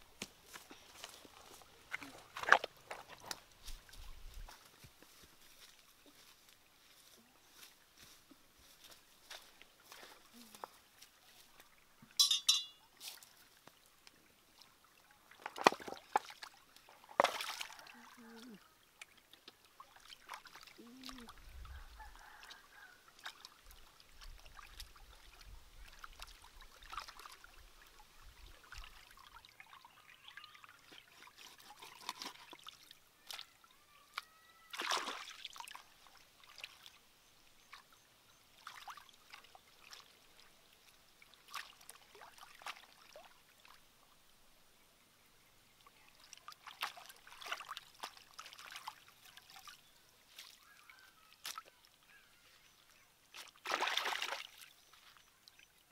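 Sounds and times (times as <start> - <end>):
shallow stream trickling: 0.0 - 55.9
hands splashing in water: 15.4 - 17.9, 34.7 - 35.8, 53.3 - 54.7.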